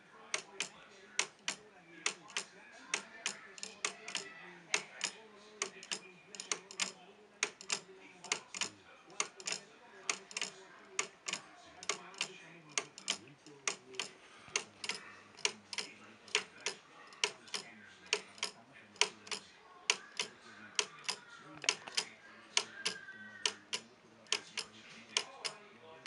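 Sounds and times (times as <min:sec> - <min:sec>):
wooden pendulum clock ticking: 0:00.3 - 0:25.6.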